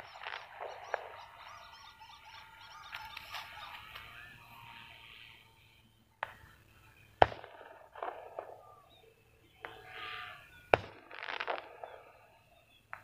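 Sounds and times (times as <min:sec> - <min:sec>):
sharp cracks: 0:10.8 - 0:12.0.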